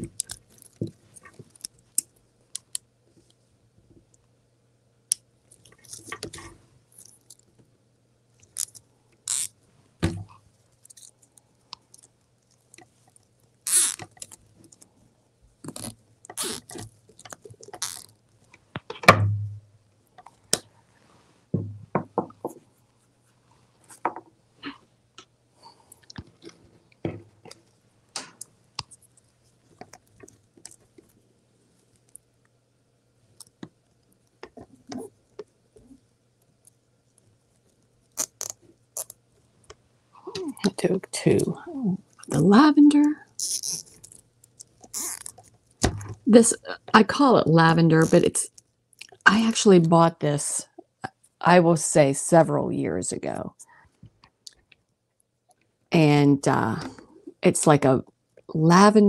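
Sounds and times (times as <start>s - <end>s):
deco mesh crinkling and rustling: 0.0s - 3.4s, 5.5s - 7.6s, 8.4s - 19.1s, 43.3s - 46.3s.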